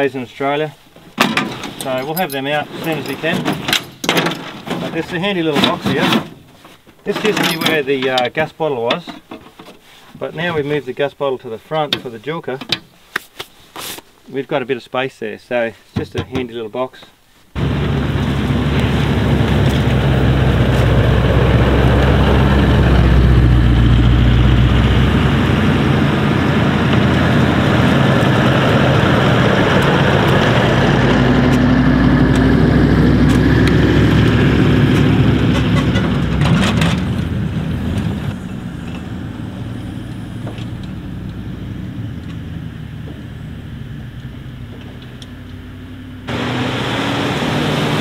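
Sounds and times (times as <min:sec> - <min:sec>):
vehicles driving past: 0:17.6 - 0:48.0.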